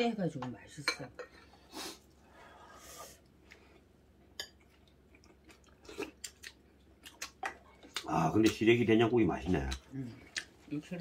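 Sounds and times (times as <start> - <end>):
faint chewing: 3.0 - 8.7, 9.4 - 11.0.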